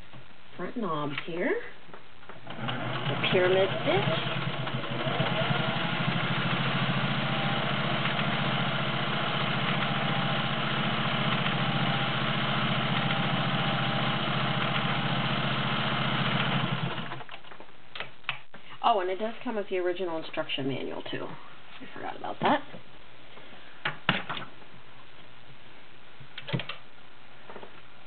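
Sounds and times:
sewing machine running: 0:02.4 - 0:17.3.

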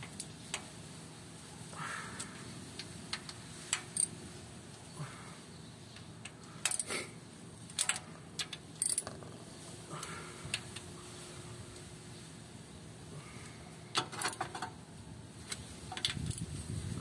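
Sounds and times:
hand tools clinking on metal: 0:06.6 - 0:07.0, 0:14.0 - 0:14.7.

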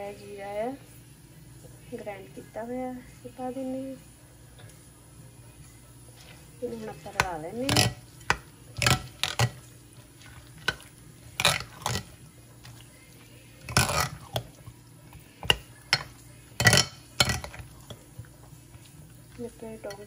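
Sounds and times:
spoon clinking against glass bowl: 0:15.4 - 0:18.0.

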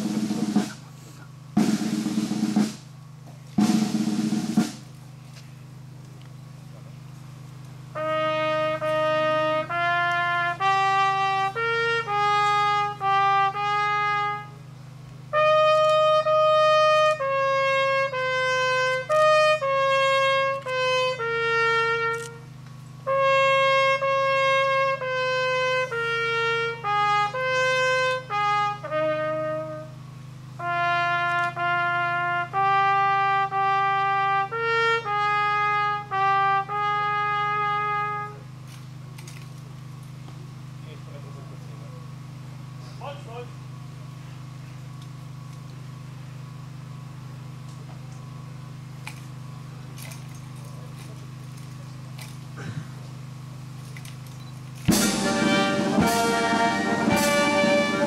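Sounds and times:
steady low hum: 0:00.0 - 0:58.0
solo trumpet melody: 0:07.8 - 0:38.6, 0:54.9 - 0:58.0.

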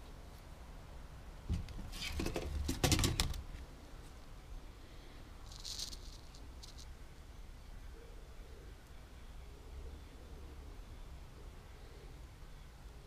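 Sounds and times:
short rustle: 0:05.4 - 0:06.9.

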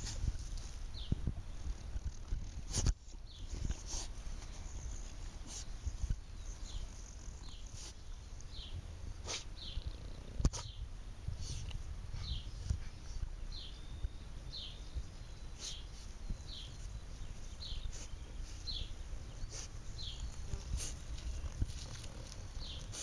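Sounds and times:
dog snuffling and snorting: 0:02.0 - 0:05.8, 0:09.2 - 0:10.8, 0:17.5 - 0:23.0.

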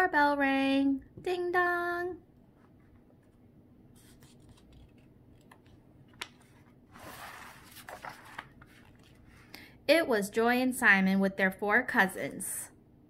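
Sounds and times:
paper page turning: 0:04.0 - 0:09.5.

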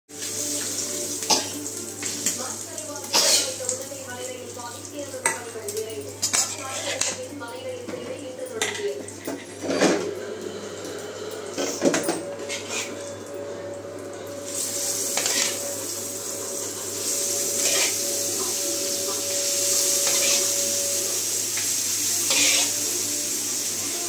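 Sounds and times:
fish sizzling in hot oil: 0:00.1 - 0:07.3, 0:14.3 - 0:24.0
metal spatula scraping steel bowl: 0:06.2 - 0:07.2, 0:11.6 - 0:13.2, 0:14.4 - 0:21.3, 0:22.2 - 0:22.9.

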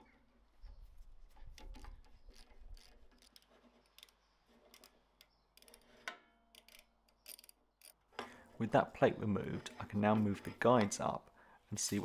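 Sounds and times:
hand tools clicking on metal: 0:01.6 - 0:08.0.

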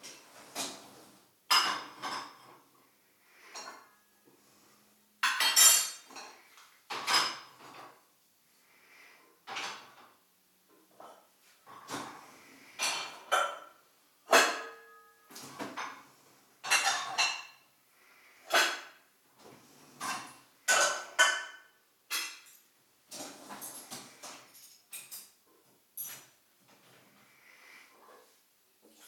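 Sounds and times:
dishes clattering: 0:01.5 - 0:02.7, 0:03.4 - 0:04.1, 0:05.2 - 0:08.0, 0:09.4 - 0:10.2, 0:11.0 - 0:17.6, 0:18.4 - 0:19.0, 0:19.9 - 0:25.4.

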